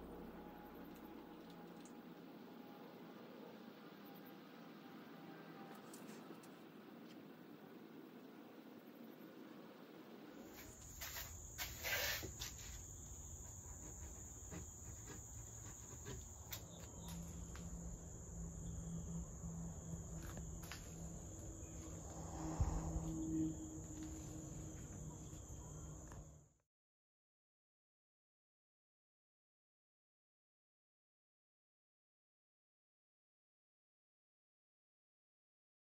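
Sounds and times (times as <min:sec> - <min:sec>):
low hum: 0:00.0 - 0:11.3, 0:12.8 - 0:26.5.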